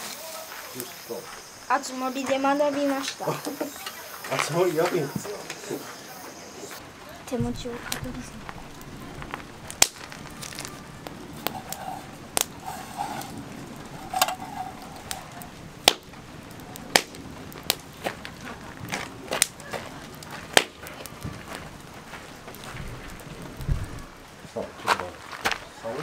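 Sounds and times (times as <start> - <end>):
campfire crackling: 0.0 - 26.0
sharp fire pops: 6.6 - 26.0.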